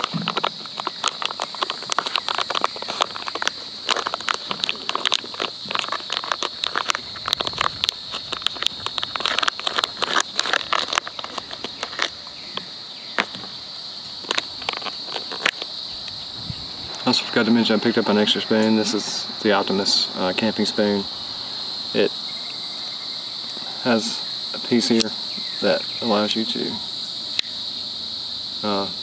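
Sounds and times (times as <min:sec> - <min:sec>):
foil pouch crinkling and tearing: 0:00.0 - 0:17.1
insects droning: 0:00.0 - 0:29.0.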